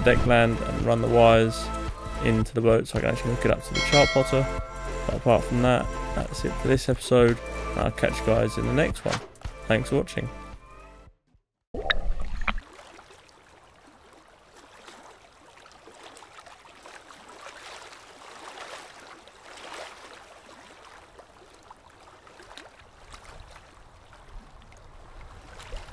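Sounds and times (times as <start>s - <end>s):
small waves sloshing and lapping: 12.1s - 25.9s.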